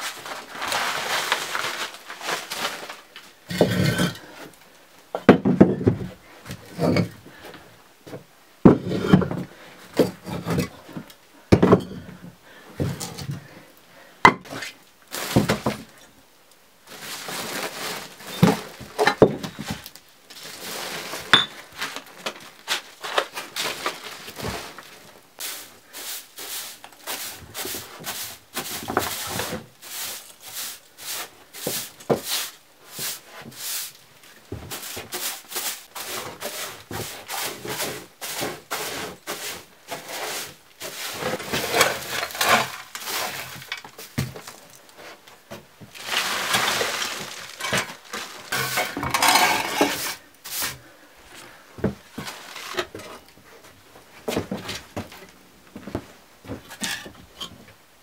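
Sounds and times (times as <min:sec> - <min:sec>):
straw broom sweeping floor: 0:00.0 - 0:04.5, 0:14.5 - 0:15.9, 0:16.8 - 0:53.7.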